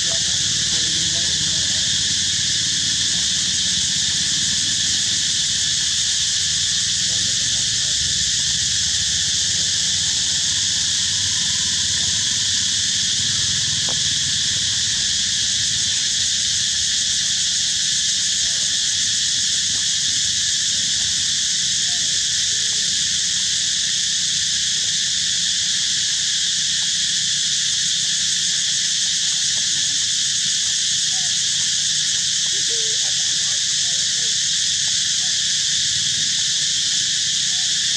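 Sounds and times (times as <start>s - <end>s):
insects droning: 0.0s - 37.9s.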